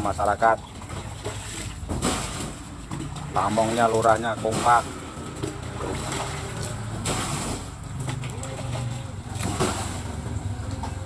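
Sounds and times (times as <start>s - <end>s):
digging knocks and scrapes: 0.8s - 11.0s.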